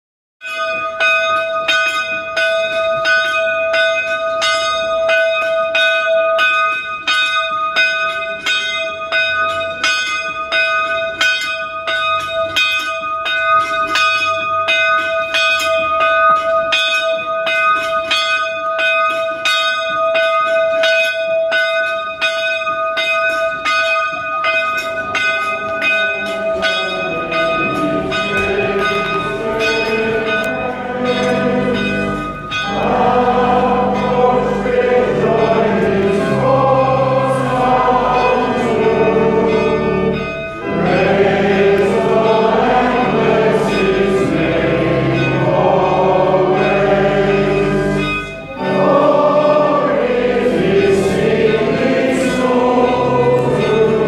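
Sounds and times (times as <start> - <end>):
church bell ringing: 0.4 - 54.0
pipe organ tones: 24.6 - 54.0.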